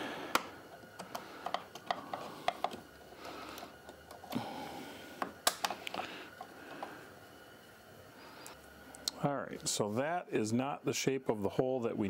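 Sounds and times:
plastic clicks and snaps: 5.2s - 6.0s.

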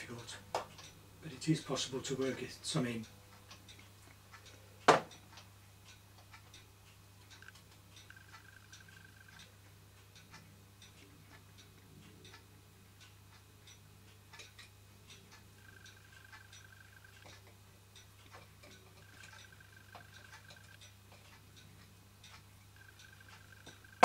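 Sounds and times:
toy steam engine clicking: 0.0s - 9.5s, 10.1s - 12.4s, 13.0s - 24.0s
low steady hum: 0.0s - 24.0s.

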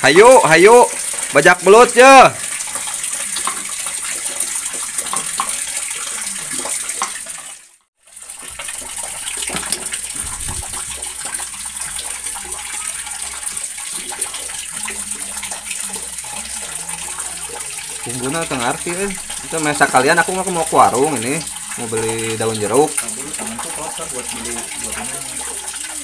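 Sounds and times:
running water hiss: 8.2s - 26.0s.

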